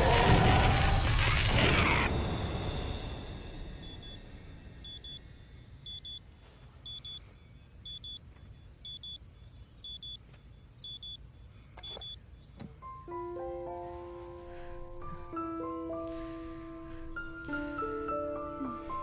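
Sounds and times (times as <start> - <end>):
alarm clock double beeping: 3.8 - 4.2, 4.8 - 5.2, 5.9 - 6.2, 6.9 - 7.2, 8.9 - 9.2.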